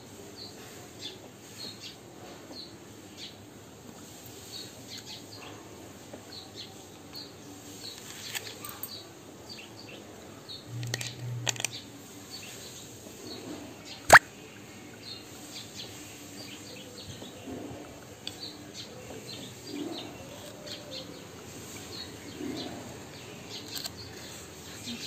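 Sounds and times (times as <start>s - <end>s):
small birds chirping: 11.7s - 25.0s.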